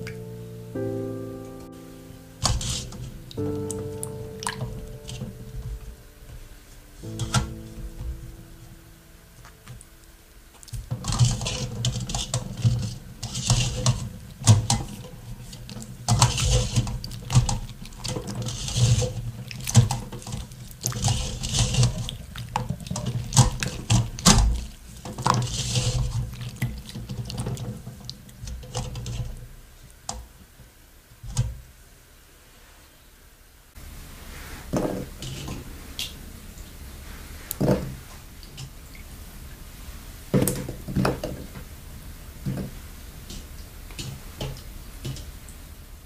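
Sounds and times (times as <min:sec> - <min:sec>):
hands rubbing nuts in water: 0:02.4 - 0:30.0.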